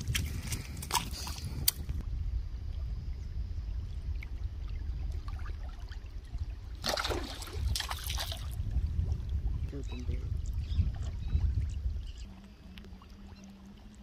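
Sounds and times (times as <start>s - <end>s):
wind rumble on microphone: 0.0s - 14.0s
fish splashing in water: 6.8s - 8.6s.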